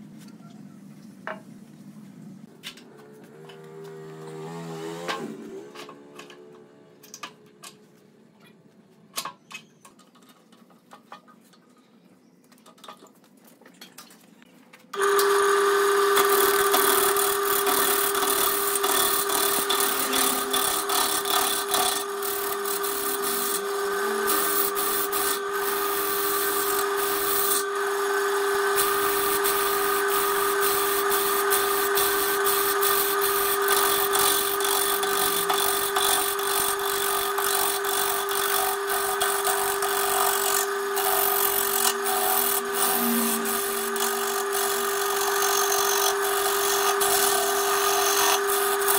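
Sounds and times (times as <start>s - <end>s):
turning tool rasping on wood: 15.0s - 48.9s
wood lathe humming: 15.0s - 48.9s.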